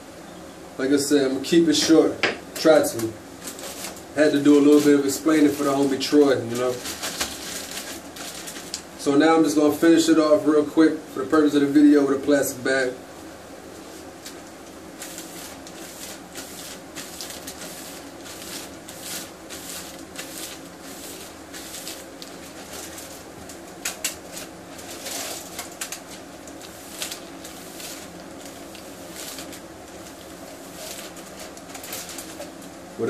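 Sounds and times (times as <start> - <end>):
steady low hum: 0.0 - 33.0
plastic bag crinkling over hair: 2.9 - 9.1, 14.0 - 32.7.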